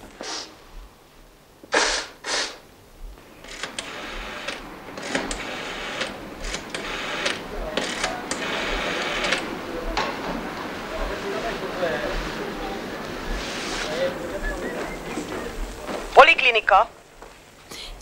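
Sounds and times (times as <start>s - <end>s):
woman blowing nose: 0.1s - 0.6s, 1.7s - 2.7s.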